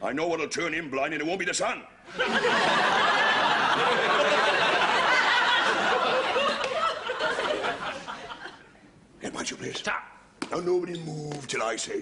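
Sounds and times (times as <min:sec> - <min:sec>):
studio audience laughing: 0:02.1 - 0:08.7.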